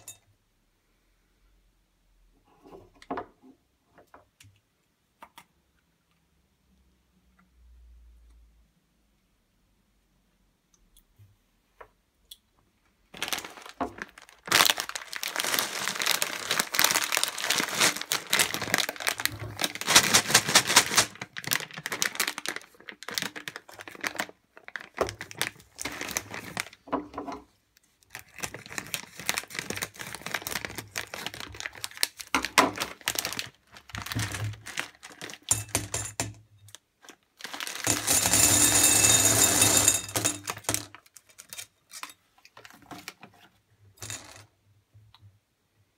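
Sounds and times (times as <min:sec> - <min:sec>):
plastic bag crinkling: 0:13.1 - 0:26.9, 0:27.9 - 0:36.0, 0:36.7 - 0:43.2
candy pouring into glass bowl: 0:13.2 - 0:26.8, 0:37.4 - 0:41.6.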